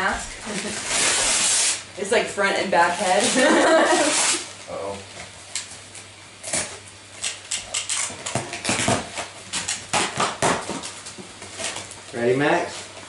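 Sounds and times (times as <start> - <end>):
wrapping paper tearing and crinkling: 0.4 - 1.9, 2.8 - 4.5.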